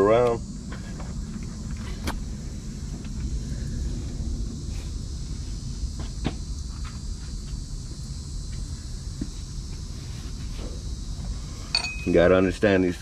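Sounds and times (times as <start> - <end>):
low rumble: 0.0 - 10.0
insects buzzing: 0.0 - 13.0.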